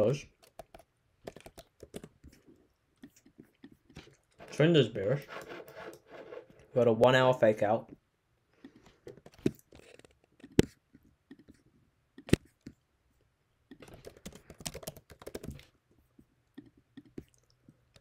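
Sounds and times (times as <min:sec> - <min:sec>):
keyboard and mouse clicks: 0:00.3 - 0:02.4, 0:08.6 - 0:11.6, 0:12.2 - 0:12.8, 0:13.7 - 0:15.7, 0:16.6 - 0:18.0.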